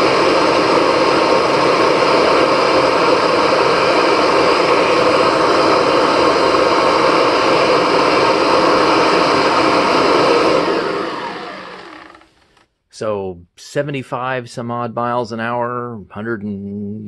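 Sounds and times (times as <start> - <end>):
motor spinning down whine: 0.0 - 12.6
vacuum cleaner running: 0.0 - 12.6.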